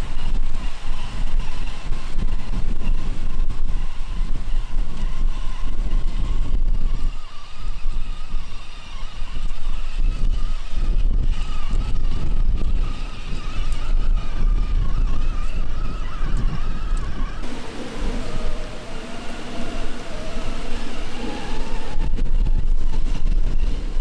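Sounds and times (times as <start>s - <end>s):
electric motor whining: 17.0s - 23.4s
low rumble: 17.4s - 23.6s.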